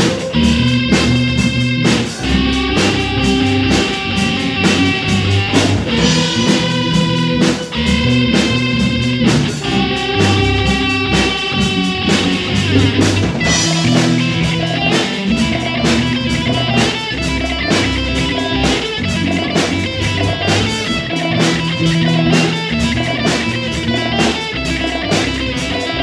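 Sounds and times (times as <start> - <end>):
drum kit beat: 0.0 - 26.0
rock guitar: 0.0 - 26.0.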